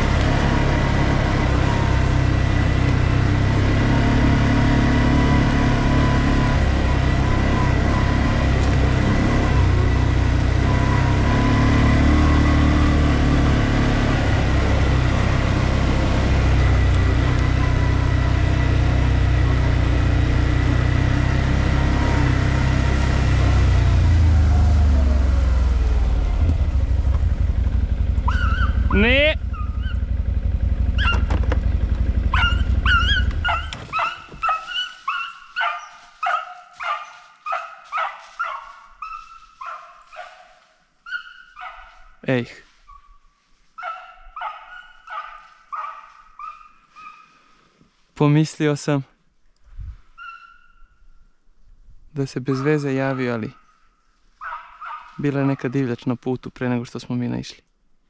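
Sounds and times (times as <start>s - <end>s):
atv engine running: 0.0s - 40.4s, 43.8s - 47.5s, 54.4s - 55.9s
dog yelping: 17.4s - 18.4s, 28.2s - 30.2s, 30.9s - 31.4s, 32.2s - 42.1s, 43.8s - 47.4s, 50.2s - 50.9s, 52.5s - 53.8s, 54.4s - 55.8s
dog whining: 28.2s - 30.0s, 30.9s - 31.4s, 32.3s - 39.9s, 50.2s - 50.8s.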